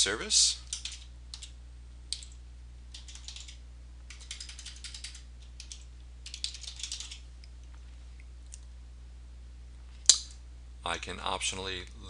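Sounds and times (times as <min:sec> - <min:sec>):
steady low hum: 0:00.0 - 0:12.0
computer keyboard typing: 0:00.6 - 0:07.2.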